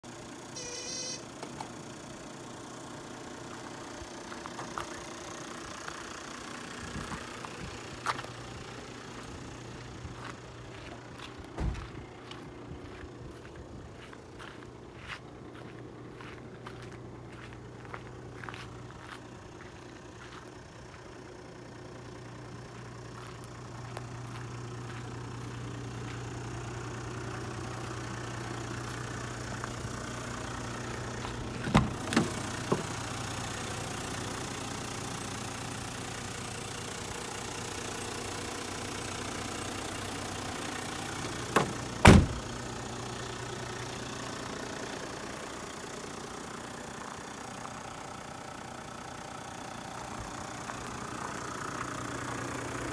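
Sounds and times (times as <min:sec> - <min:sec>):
diesel engine idling: 0:00.0 - 0:52.9
car door shutting thud: 0:11.6 - 0:11.9, 0:31.6 - 0:32.9, 0:41.5 - 0:42.5
car door clicks: 0:31.6 - 0:32.9, 0:41.5 - 0:42.4.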